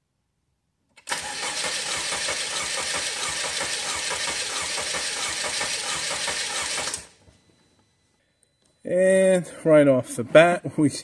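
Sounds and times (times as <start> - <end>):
car engine cranking on starter: 1.0 - 7.2.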